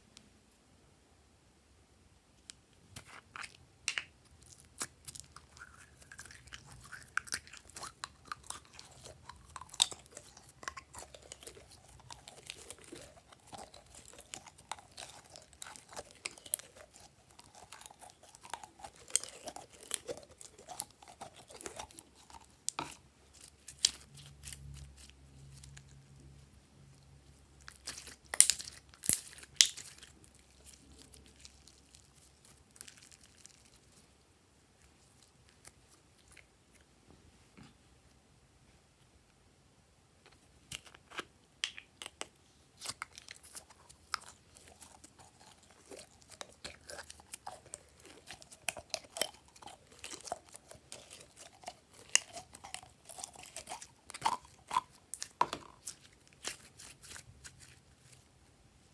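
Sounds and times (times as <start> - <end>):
slime squelching: 4.2 - 34.1, 42.0 - 58.3.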